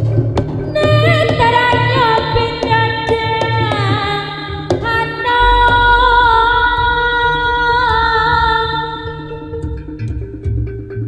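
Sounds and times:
drum strokes: 0:00.0 - 0:11.0
high pitch-bending melody: 0:05.0 - 0:10.4
deep low boom: 0:05.4 - 0:08.8.

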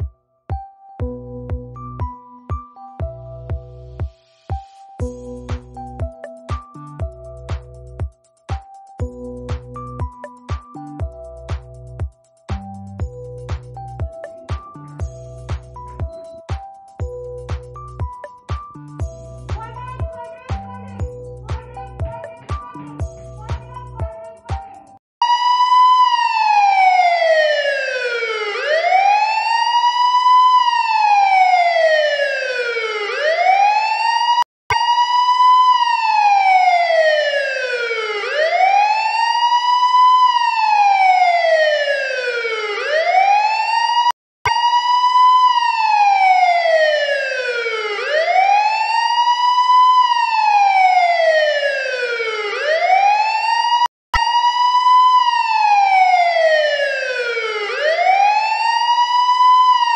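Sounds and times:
electronic wailing siren: 0:25.2 - 0:59.9.

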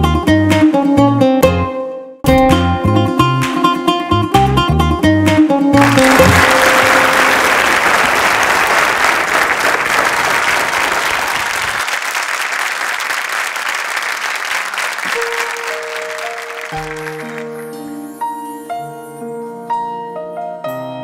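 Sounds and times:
audience applauding: 0:05.8 - 0:17.8.

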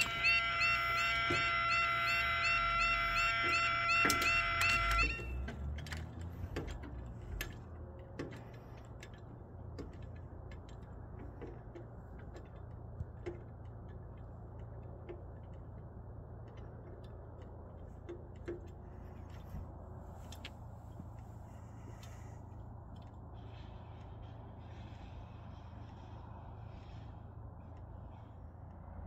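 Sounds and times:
steady low rumble: 0:06.3 - 0:29.0.

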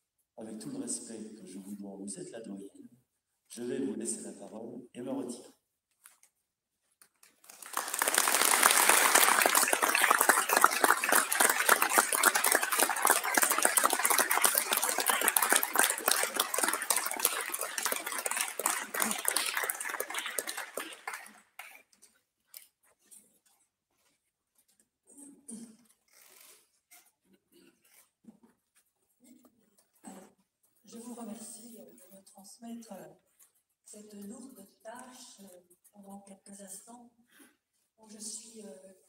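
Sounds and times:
people applauding: 0:07.4 - 0:21.9.

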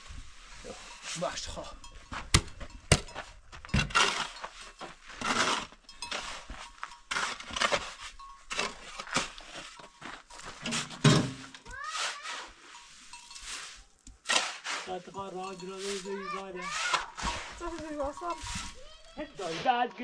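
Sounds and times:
shovel scraping sand and cement: 0:03.7 - 0:20.0
load thudding into wheelbarrow: 0:10.6 - 0:11.6.

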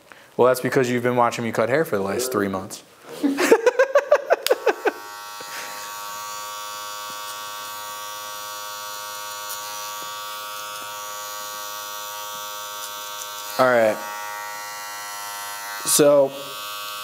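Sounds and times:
man laughing: 0:03.1 - 0:05.8
electric hair clipper buzzing: 0:04.4 - 0:17.0.

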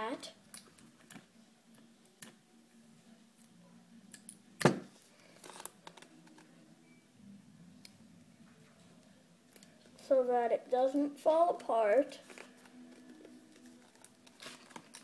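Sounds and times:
paper rustling: 0:12.2 - 0:15.0.

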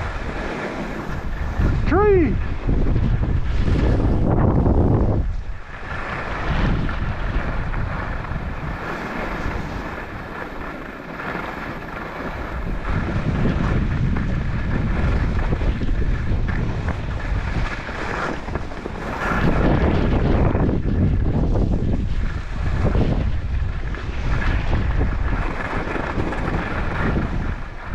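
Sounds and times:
snowboard edges scraping snow: 0:00.0 - 0:01.8, 0:02.4 - 0:27.9
wind rushing over microphone: 0:00.0 - 0:27.9.

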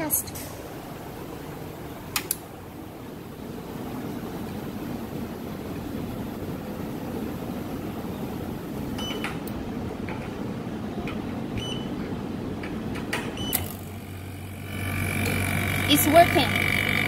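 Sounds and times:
laminating machine hum: 0:00.6 - 0:17.0
short touchscreen beeps: 0:11.6 - 0:11.9.

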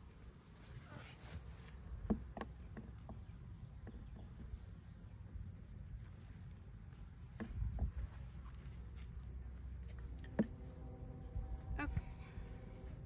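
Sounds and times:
high insect trill: 0:00.0 - 0:13.0
low rumble: 0:09.4 - 0:13.0.

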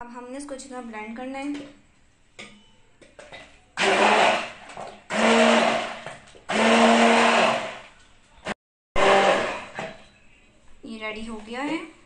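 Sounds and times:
immersion blender running: 0:03.8 - 0:07.8, 0:09.0 - 0:09.8.

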